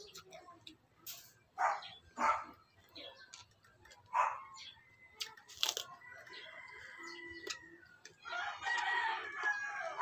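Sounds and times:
crunch of biting cucumber: 5.2s - 6.0s
rooster crowing: 6.0s - 10.0s.

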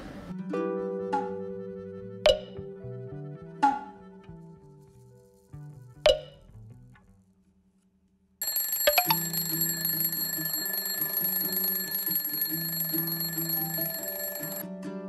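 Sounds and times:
background music: 0.3s - 6.9s
alarm clock bells ringing: 8.4s - 14.6s.

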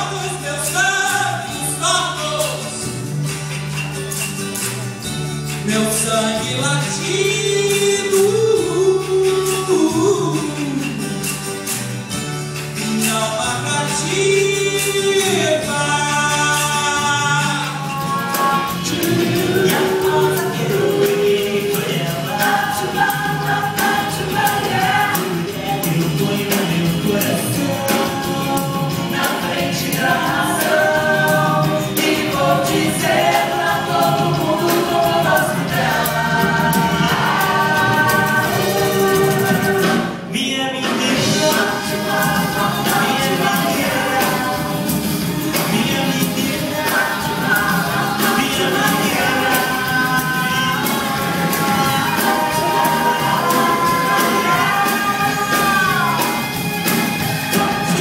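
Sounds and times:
tambourine: 0.0s - 40.2s, 41.2s - 58.0s
bass guitar: 0.0s - 58.0s
electric guitars: 0.0s - 58.0s
person singing lead: 12.9s - 56.5s
several voices singing together: 12.9s - 58.0s.

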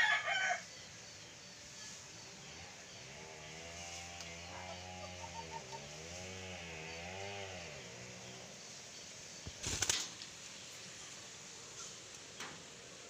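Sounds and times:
rooster crowing: 0.0s - 0.8s
dove wings flapping: 9.4s - 10.3s.

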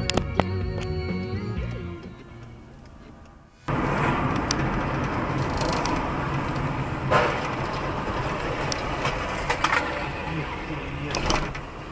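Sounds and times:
car engine and road noise: 0.0s - 11.9s.

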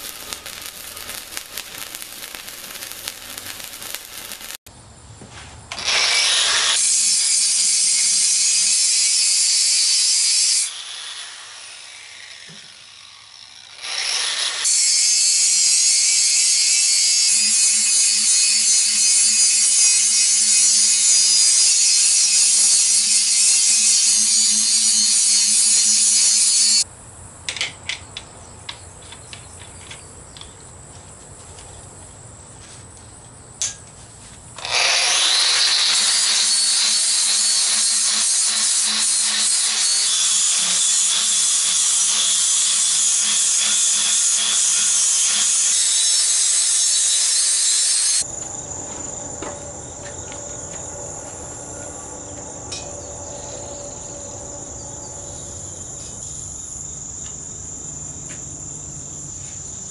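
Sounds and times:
angle grinder grinding steel: 0.0s - 4.6s, 5.7s - 26.8s, 34.6s - 48.3s.

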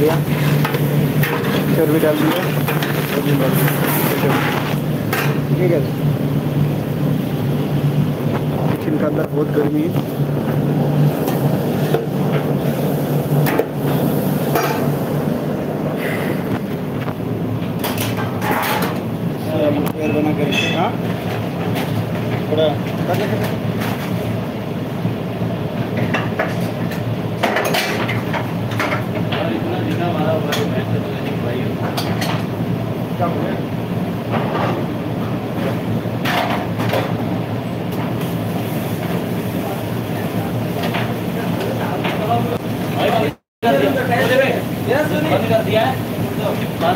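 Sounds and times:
extraction hood fan drone: 0.0s - 46.9s
kitchen equipment hum: 0.0s - 46.9s.

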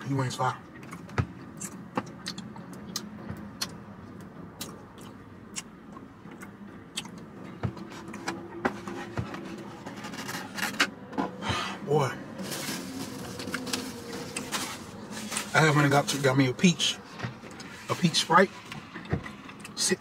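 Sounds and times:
low hum of car cabin: 0.0s - 20.0s
styrofoam container handled: 12.4s - 16.2s.

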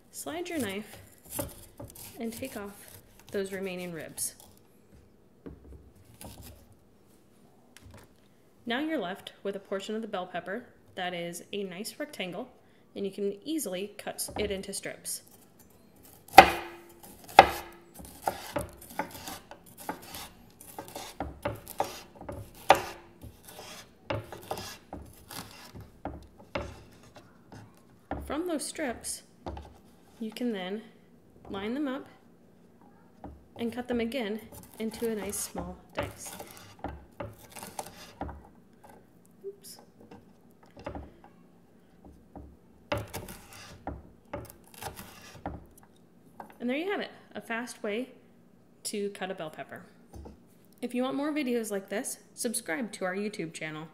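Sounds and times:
knife chopping on wooden board: 16.3s - 28.4s, 33.2s - 38.5s, 42.1s - 45.8s.

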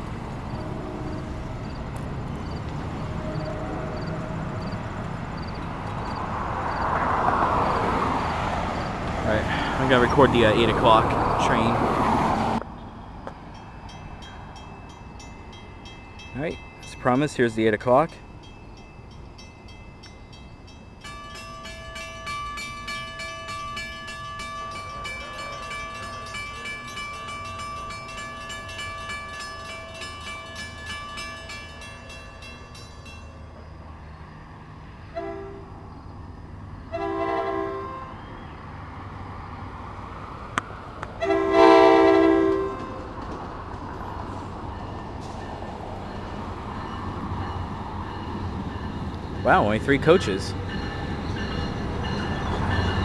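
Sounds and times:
train rumble: 0.0s - 53.0s
train horn blasts: 0.4s - 1.4s, 3.1s - 4.6s, 35.1s - 35.7s, 36.9s - 38.2s, 41.2s - 43.1s
crossing bell ringing rapidly: 12.8s - 33.6s, 44.6s - 53.0s.

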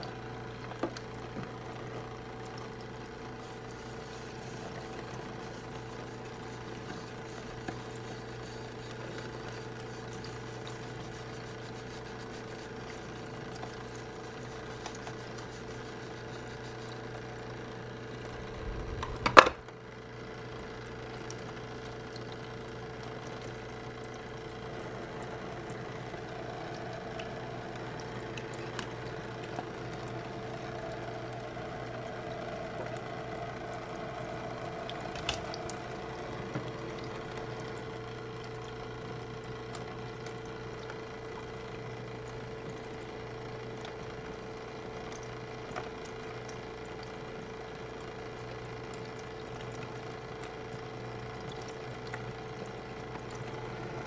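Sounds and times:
water trickling from faucet: 0.0s - 18.2s, 19.8s - 54.0s
small water pump humming: 0.0s - 54.0s.

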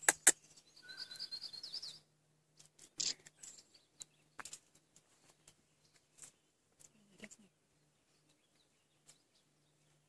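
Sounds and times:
sharp clicks: 0.0s - 0.4s
small bird twittering: 0.0s - 2.1s.

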